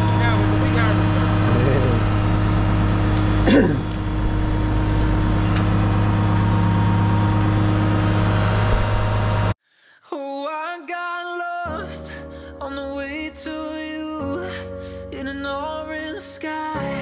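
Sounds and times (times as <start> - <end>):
loader engine idling: 0.0 - 9.6.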